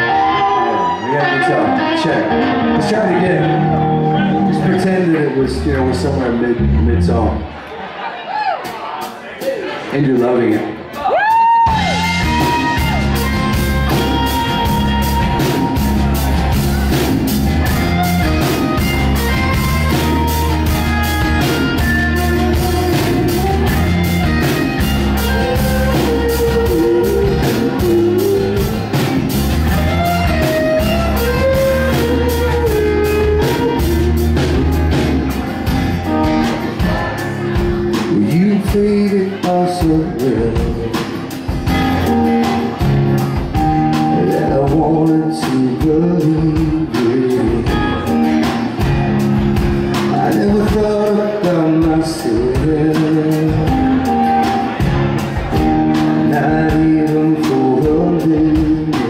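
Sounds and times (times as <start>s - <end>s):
live rock band playing: 0.0s - 59.0s
man singing: 36.7s - 41.4s, 43.8s - 48.4s, 49.9s - 54.8s, 55.9s - 59.0s.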